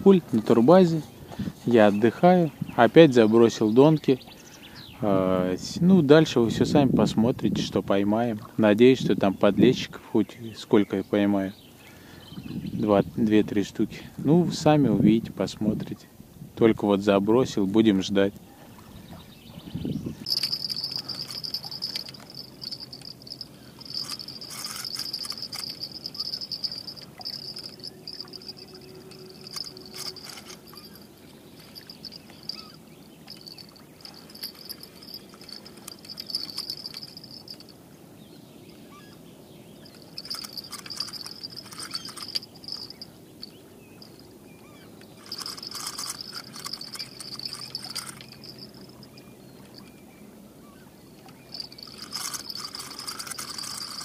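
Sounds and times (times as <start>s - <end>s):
insect trilling: 20.2s - 37.7s, 39.8s - 49.3s, 51.4s - 54.0s.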